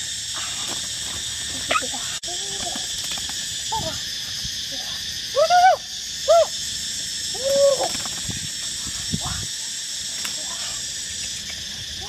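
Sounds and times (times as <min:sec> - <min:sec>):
high-pitched insect drone: 0:00.0 - 0:12.0.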